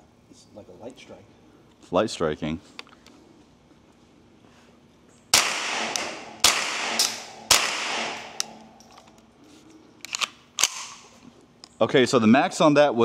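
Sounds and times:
rifle shots echoing: 5.3s - 8.7s
rifle action clicks: 6.9s - 9.2s, 10.0s - 11.1s.

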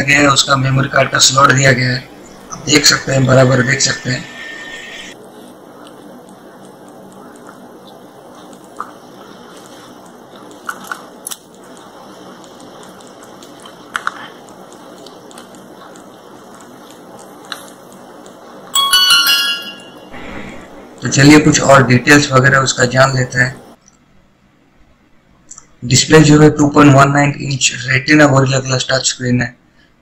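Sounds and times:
electronic startup chime: 18.8s - 21.1s.

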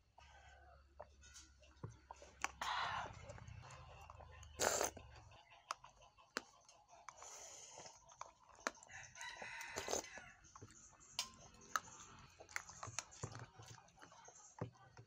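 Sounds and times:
rooster crowing: 8.9s - 10.5s.

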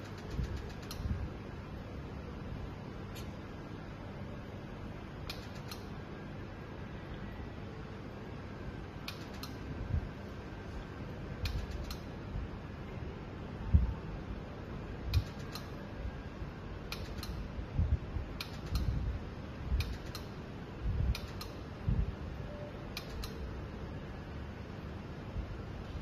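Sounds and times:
fan hum: 0.0s - 26.0s
laser machine double click: 15.1s - 15.8s, 16.9s - 17.5s, 18.4s - 19.0s, 19.8s - 20.4s, 21.1s - 21.6s, 22.9s - 23.5s.

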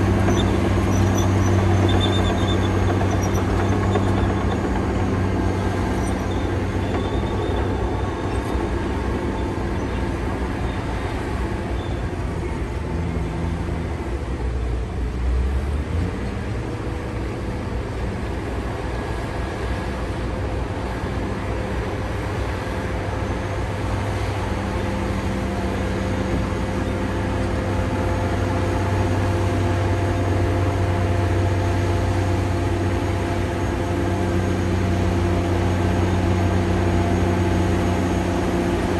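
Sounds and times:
bulldozer diesel engine drone: 0.0s - 38.9s.

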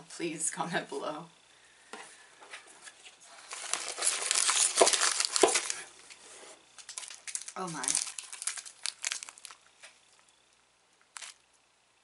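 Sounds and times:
plastic wrappers crinkling: 3.3s - 6.2s, 6.8s - 10.2s, 11.1s - 11.4s.

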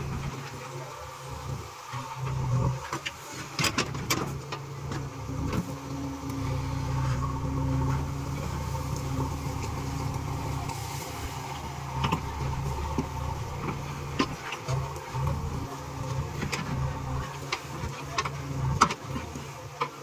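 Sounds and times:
diesel engine running under load: 3.8s - 19.4s.

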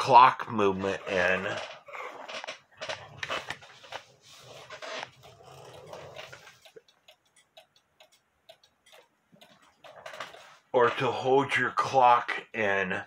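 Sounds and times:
clock ticking quickly: 3.0s - 11.0s.

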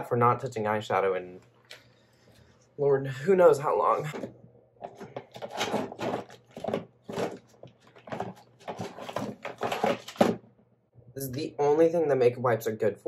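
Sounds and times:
plastic packet rustling: 4.1s - 10.4s.

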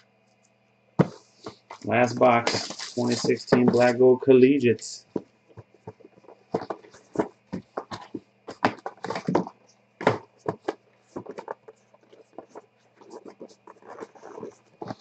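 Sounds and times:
cardboard box scraping and rustling: 10.2s - 15.0s.

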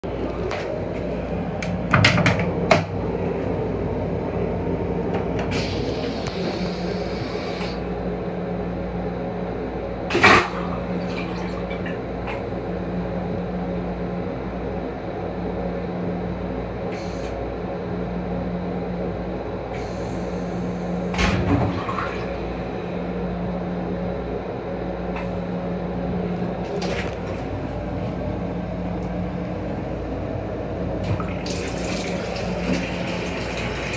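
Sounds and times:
steady hum: 0.0s - 33.9s
vacuum toilet flushing: 5.4s - 7.8s, 10.1s - 12.5s, 21.1s - 23.0s, 31.0s - 33.9s.

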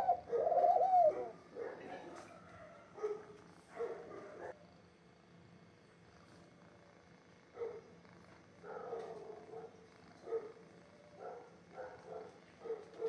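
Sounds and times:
pigeon cooing: 0.0s - 4.4s.

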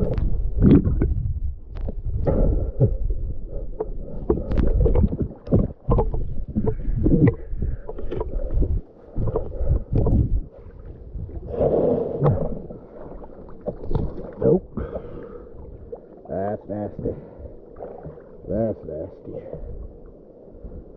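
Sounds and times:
underwater knocking and clicking: 0.0s - 10.5s, 13.4s - 15.1s
water splashing: 4.0s - 18.6s.

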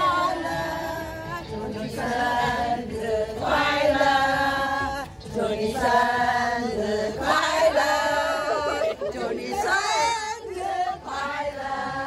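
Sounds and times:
women singing unaccompanied: 0.0s - 12.0s.

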